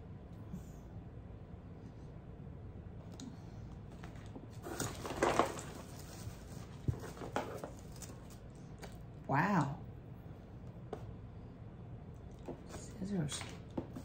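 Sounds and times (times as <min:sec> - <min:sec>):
paper rustling and crinkling: 0:03.9 - 0:09.0.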